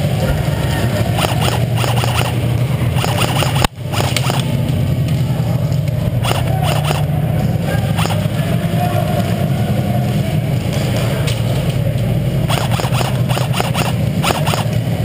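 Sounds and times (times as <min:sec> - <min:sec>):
steady low hum: 0:00.0 - 0:15.0
airsoft guns firing bursts: 0:01.1 - 0:04.6, 0:06.2 - 0:07.1, 0:07.9 - 0:08.4, 0:12.5 - 0:14.9.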